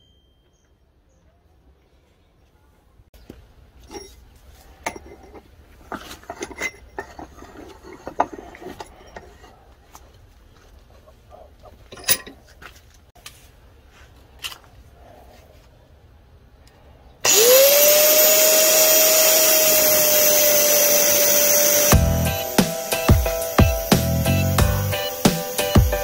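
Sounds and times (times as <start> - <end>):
steel parts clinking and knocking: 3.8 - 10.1, 11.6 - 12.6.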